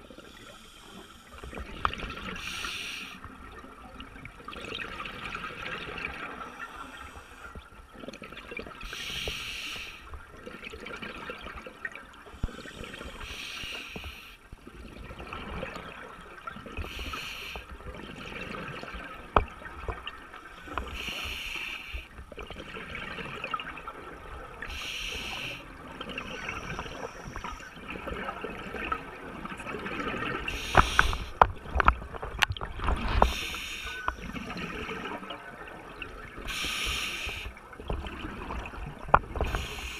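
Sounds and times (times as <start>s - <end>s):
murky underwater background: 0.0s - 39.9s
exhaled bubbles rushing: 4.2s - 6.5s, 22.4s - 24.6s, 25.7s - 33.5s, 37.7s - 39.7s.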